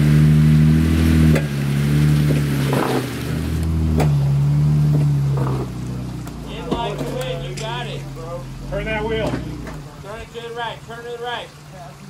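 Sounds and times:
engine running under load: 0.0 - 12.0
sharp knocks: 3.9 - 4.3.

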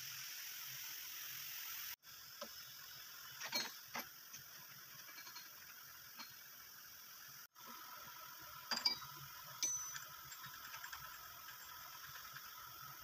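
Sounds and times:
faint steady hum: 1.8 - 13.0
metallic clinks of steel parts: 3.4 - 6.5, 8.7 - 11.2.

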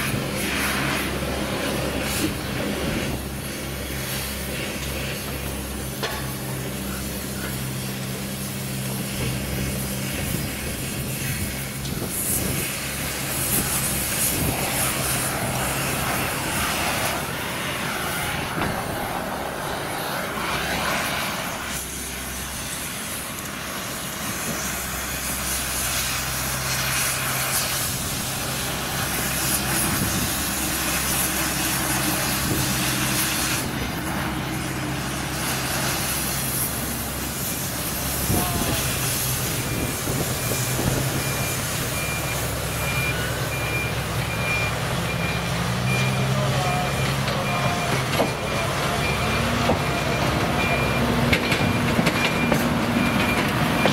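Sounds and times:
low engine drone: 0.0 - 53.9
rushing noise: 0.0 - 53.9.

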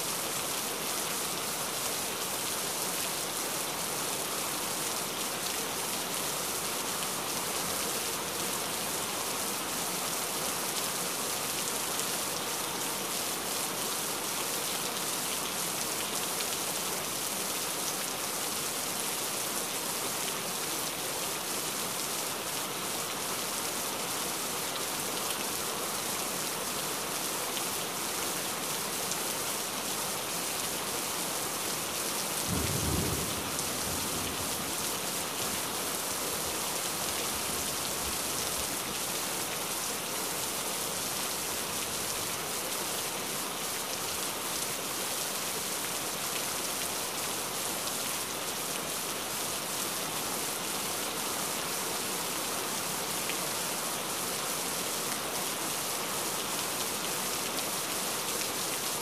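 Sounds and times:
heavy rain: 0.0 - 59.0
low rumble of thunder: 32.5 - 34.6.

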